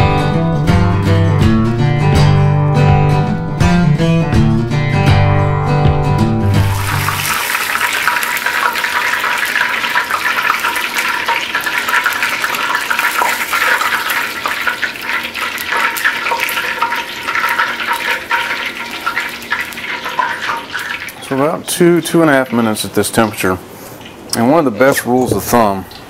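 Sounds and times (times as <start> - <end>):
fish deep-frying in hot oil: 6.6 - 23.2.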